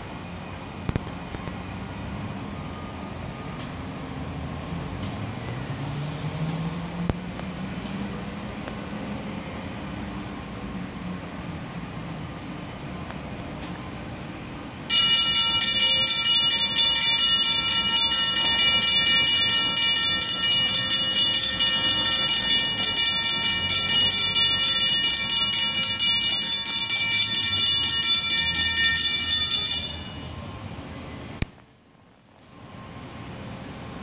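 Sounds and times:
railroad crossing bells ringing: 14.8s - 31.4s.

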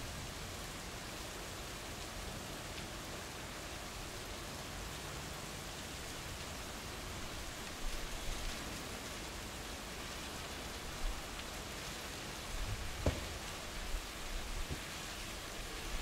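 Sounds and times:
steady rain falling: 0.0s - 16.0s
low thumps: 12.8s - 13.5s.

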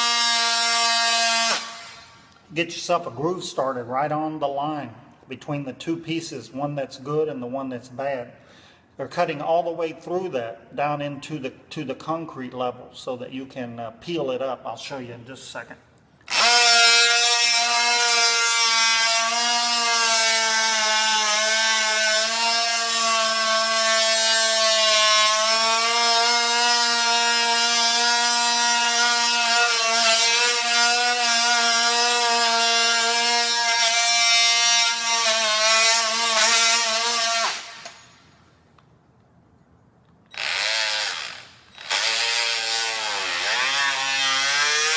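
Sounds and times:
oscillating multi-tool cutting wood: 0.0s - 2.0s, 16.3s - 38.0s, 40.3s - 44.9s.

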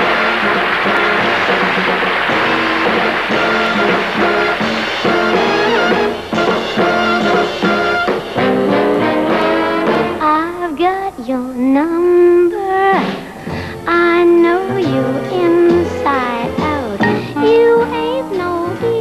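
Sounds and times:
brassy big-band music: 0.0s - 10.4s.

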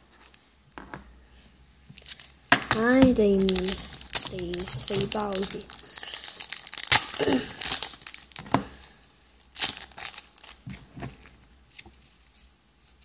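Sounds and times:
foil wrapper tearing and crinkling: 2.0s - 11.4s.

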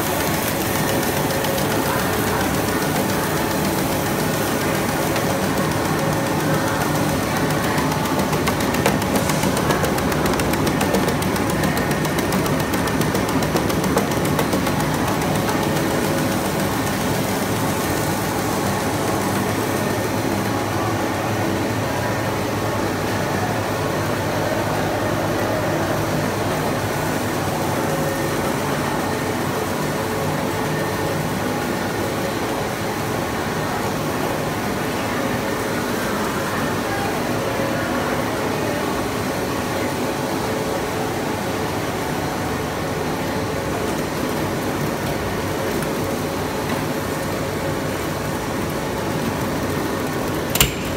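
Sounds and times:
rapid mechanical clicking: 0.0s - 20.4s, 48.2s - 50.9s
machine hum of motors and conveyors: 0.0s - 50.9s.

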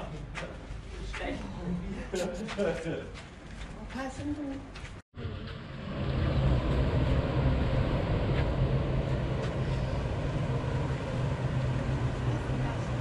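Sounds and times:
low engine drone: 5.2s - 13.0s.

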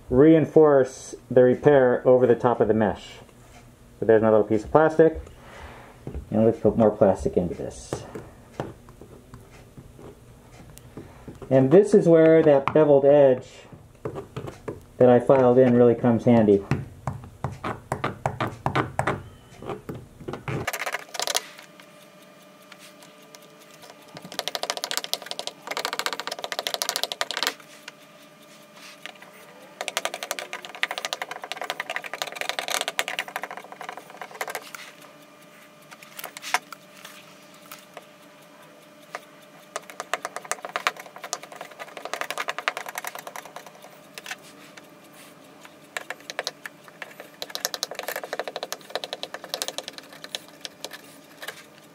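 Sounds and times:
plastic welding iron crackling: 23.3s - 35.1s, 45.5s - 51.9s.

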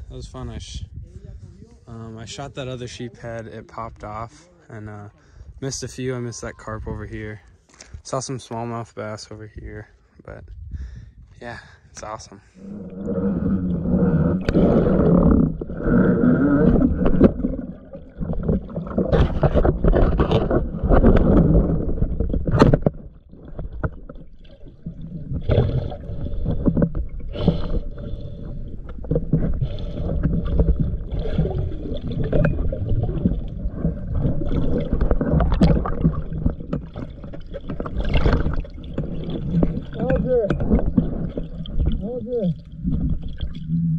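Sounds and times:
muffled underwater sloshing: 12.0s - 43.9s
low underwater rumble: 12.5s - 43.9s.

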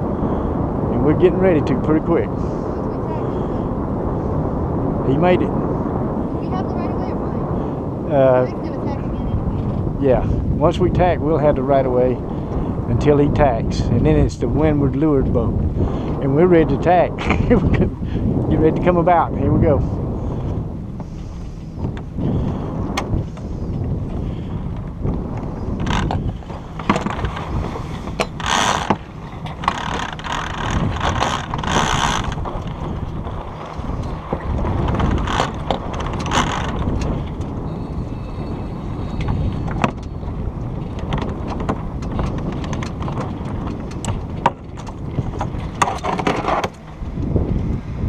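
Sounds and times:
water running along hull: 0.0s - 48.0s
wind buffeting microphone: 0.0s - 48.0s
sail rustling: 14.8s - 48.0s.

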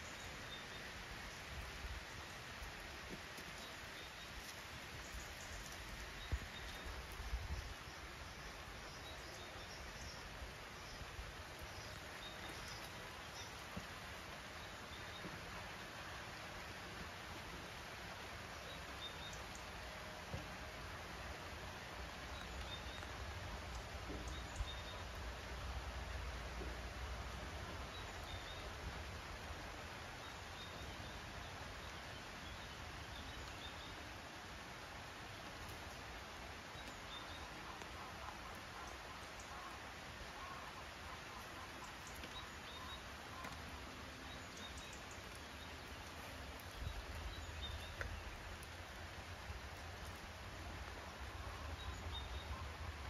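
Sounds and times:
small birds chirping: 0.0s - 15.5s, 35.2s - 53.0s
faint steady hiss: 0.0s - 53.0s
light ticks: 44.5s - 48.8s.

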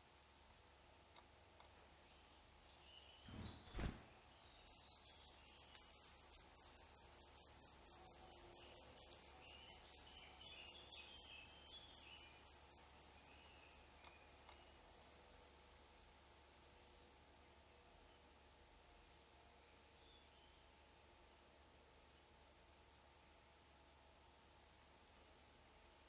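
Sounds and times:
nestlings begging calls: 4.5s - 13.4s.

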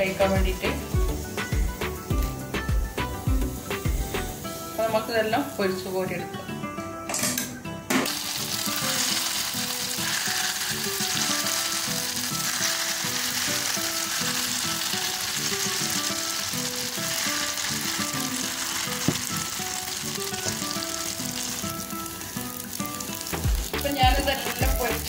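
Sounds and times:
food deep-frying in oil: 0.0s - 5.9s, 8.0s - 25.0s.

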